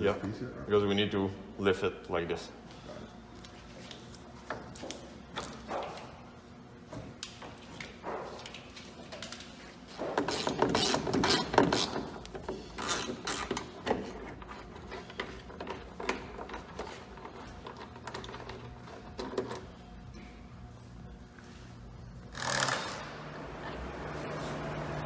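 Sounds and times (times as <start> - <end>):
ratchet wrench clicking: 22.3 - 23.0.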